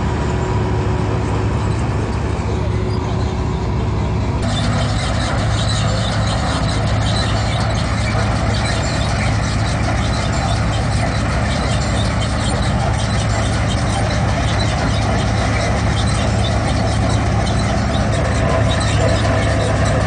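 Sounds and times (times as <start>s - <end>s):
harvester engine hum: 0.0s - 20.0s
mechanical clatter: 4.4s - 20.0s.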